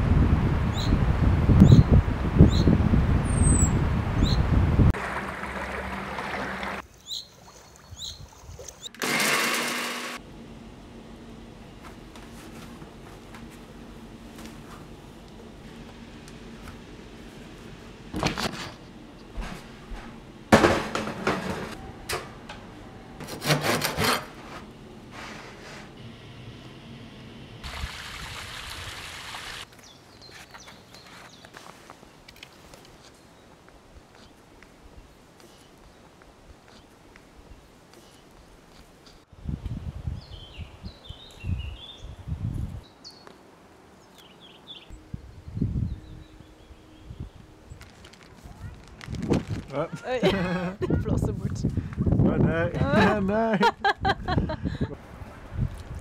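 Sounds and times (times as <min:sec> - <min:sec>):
wind rumble on microphone: 0:00.0 - 0:05.0, 0:39.3 - 0:42.9, 0:44.9 - 0:49.8, 0:50.8 - 0:53.1, 0:54.0 - 0:56.0
bread knife sawing crust: 0:23.2 - 0:24.6.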